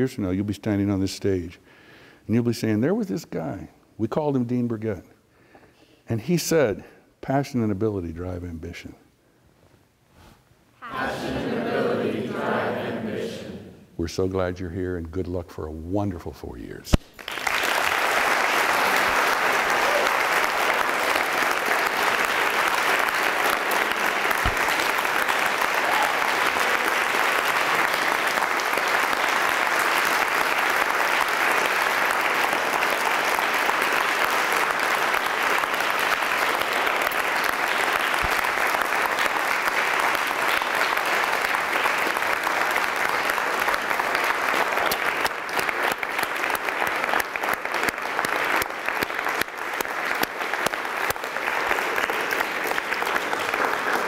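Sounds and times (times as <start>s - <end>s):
audience applauding: 17.1s - 54.0s.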